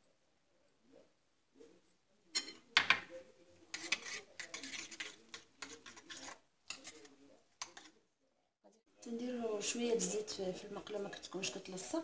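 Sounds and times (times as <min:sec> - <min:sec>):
utensil clinking and scraping glass bowl: 0:03.7 - 0:08.0.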